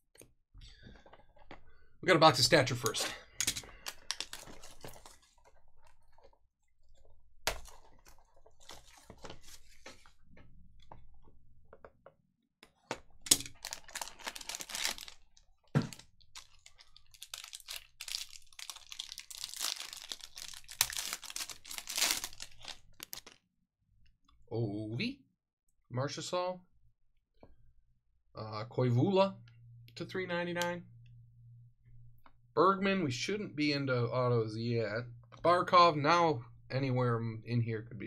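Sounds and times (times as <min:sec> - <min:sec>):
plastic wrapping tearing and crinkling: 0:03.8 - 0:05.4, 0:13.3 - 0:23.4.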